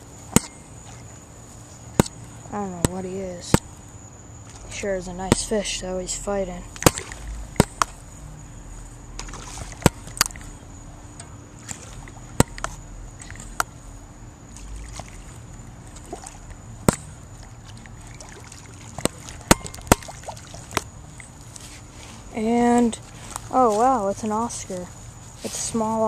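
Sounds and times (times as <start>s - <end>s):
fishing tackle clicks and knocks: 9.2s - 13.8s, 19.0s - 21.6s.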